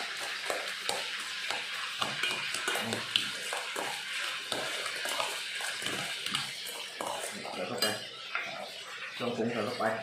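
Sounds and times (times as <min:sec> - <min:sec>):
metal spoon stirring wet mixture: 0:00.0 - 0:10.0
spoon clinking against pot: 0:02.0 - 0:03.9.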